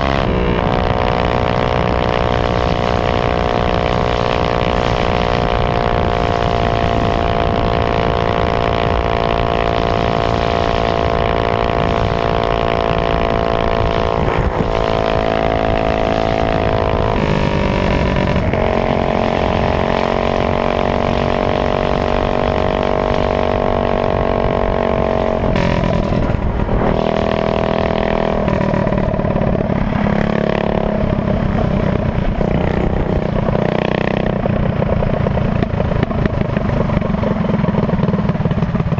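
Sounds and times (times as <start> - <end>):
minibike engine revving: 0.0 - 38.9.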